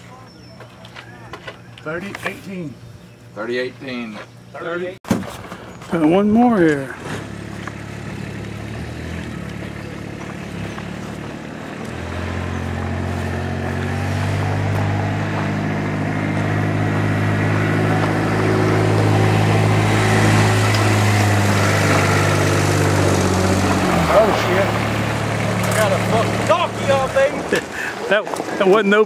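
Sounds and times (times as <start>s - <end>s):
utility vehicle engine running: 5.9s - 28.4s.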